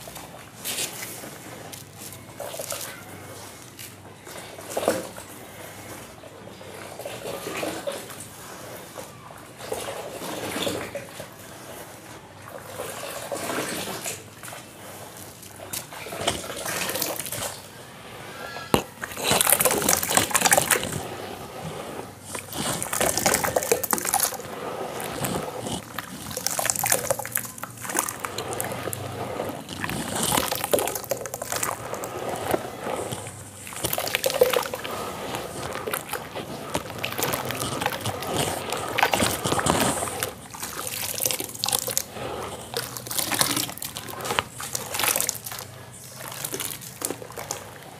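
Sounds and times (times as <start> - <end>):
wet sand slurry splashing: 10.1 - 47.9.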